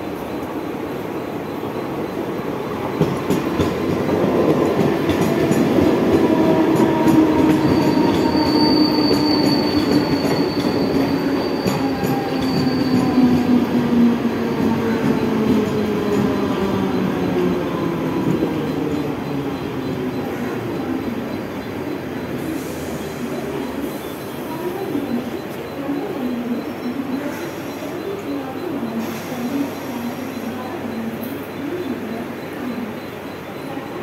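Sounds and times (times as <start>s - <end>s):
train rumble: 0.0s - 34.0s
high wheel squeal: 7.3s - 13.2s.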